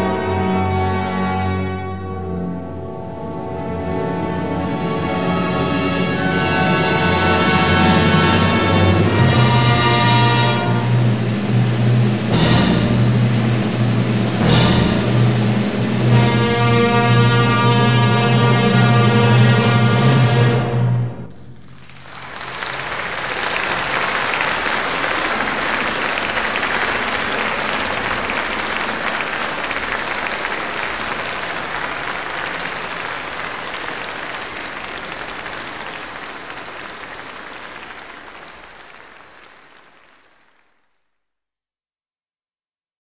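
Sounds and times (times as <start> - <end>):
audience applauding: 21.4 - 41.0.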